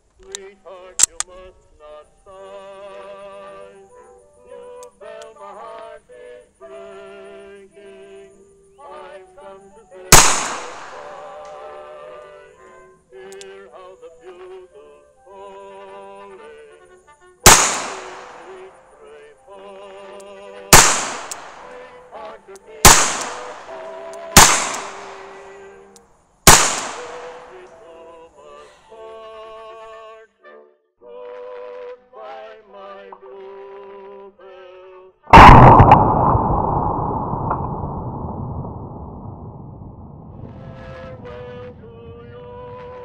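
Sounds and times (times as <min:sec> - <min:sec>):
background music with singing: 0:00.0 - 0:35.3
revolver gunshots: 0:10.2 - 0:11.3, 0:17.5 - 0:18.7, 0:20.8 - 0:21.9, 0:22.9 - 0:23.8, 0:24.4 - 0:25.4, 0:26.5 - 0:27.6, 0:35.3 - 0:40.0.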